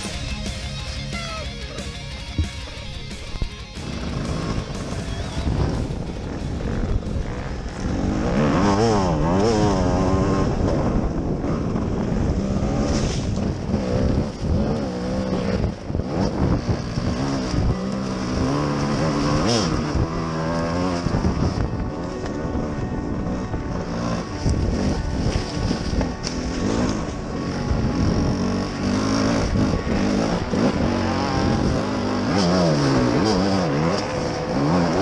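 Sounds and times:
dirt bike engine revving: 0.0 - 35.0.

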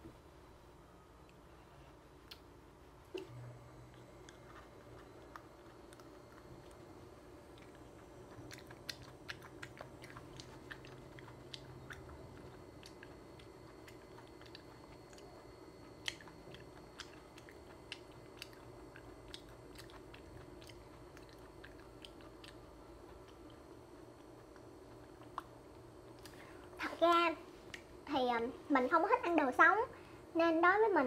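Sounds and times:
small mouth clicks: 2.2 - 2.5, 8.4 - 23.6, 24.5 - 25.6
person chewing wetly: 3.2 - 26.8.

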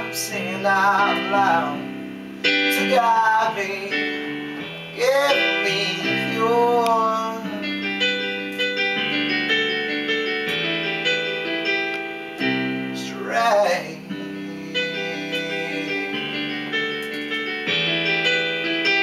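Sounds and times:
man singing drawn-out notes: 0.0 - 1.9, 2.7 - 4.3, 5.0 - 7.7, 13.0 - 16.5
electronic keyboard chords: 0.0 - 19.0.

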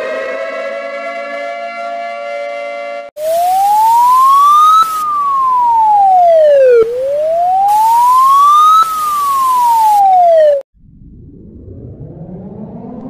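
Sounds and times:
police siren wailing: 3.2 - 10.6, 11.4 - 13.0.

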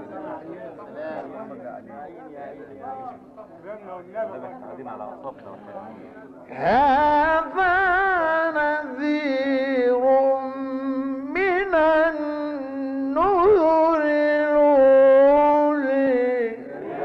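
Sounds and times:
man reciting melodically: 6.5 - 16.8.

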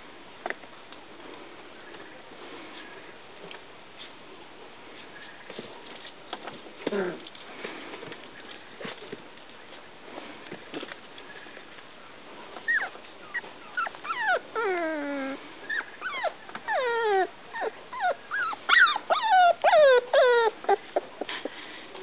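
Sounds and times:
dog whining: 12.6 - 21.3.

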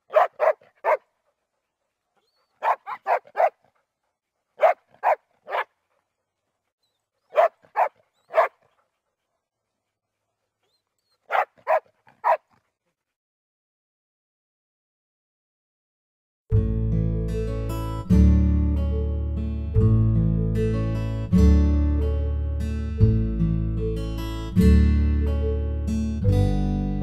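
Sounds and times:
dog barking: 0.0 - 1.1, 2.6 - 3.6, 4.6 - 5.8, 7.3 - 8.7, 11.2 - 12.6.

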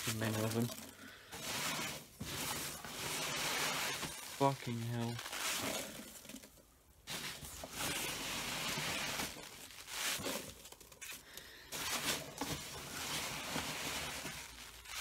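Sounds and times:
foam packing peanuts rustling: 0.0 - 15.0.

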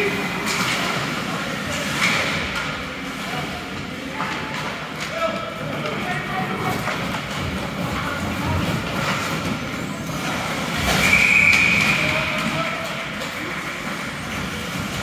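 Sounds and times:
game and spectators noise: 0.0 - 15.0
referee's whistle blast: 11.0 - 12.0.

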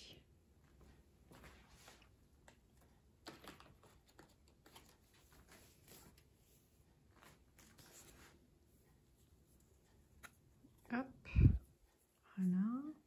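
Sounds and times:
rustling of cardboard cards: 1.3 - 8.5.

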